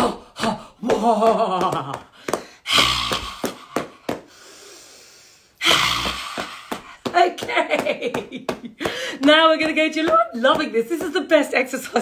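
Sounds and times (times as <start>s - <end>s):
hands slapping body: 0.4s - 4.3s, 5.7s - 12.0s
woman's forceful breathy exhalations: 8.8s - 9.2s.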